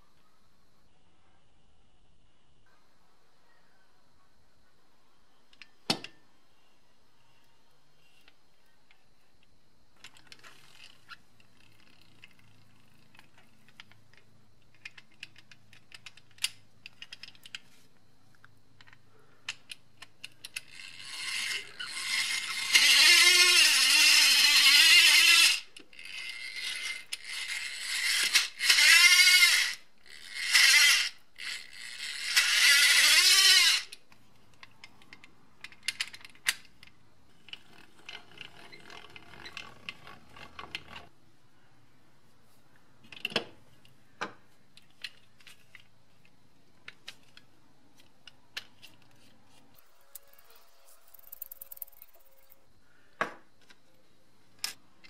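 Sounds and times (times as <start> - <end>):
hand drill gears screeching: 20.6 - 34.0, 49.8 - 52.6.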